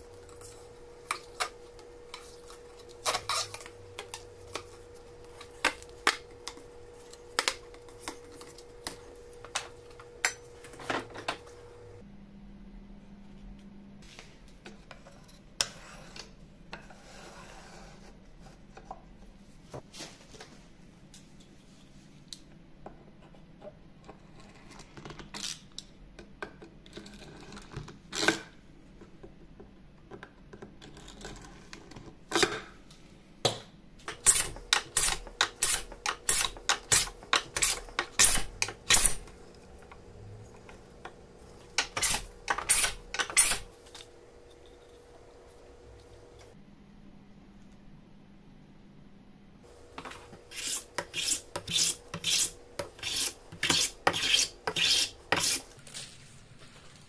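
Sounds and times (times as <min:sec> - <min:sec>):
wood plane strokes: 0:49.8 - 0:55.8.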